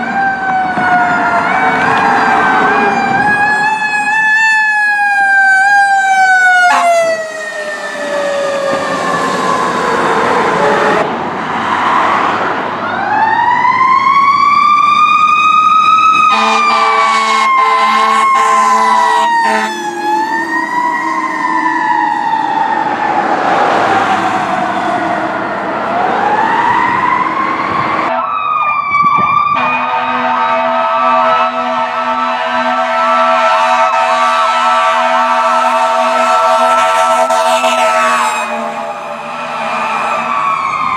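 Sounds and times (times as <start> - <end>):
wailing siren: 0.0 - 40.9
horn blasts: 6.6 - 7.2, 16.3 - 19.9, 29.6 - 40.3
steady horn-like tones: 6.6 - 7.2, 16.3 - 19.9, 29.6 - 40.4.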